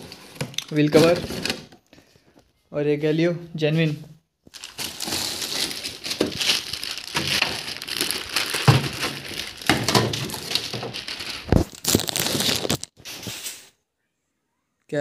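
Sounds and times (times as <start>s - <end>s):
plastic and cardboard crinkling: 0.0s - 2.4s, 4.5s - 13.5s.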